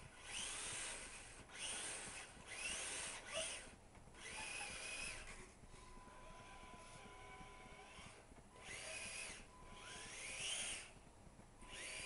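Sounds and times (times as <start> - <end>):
toy car electric motor whining: 0.0 - 11.0, 11.6 - 12.0.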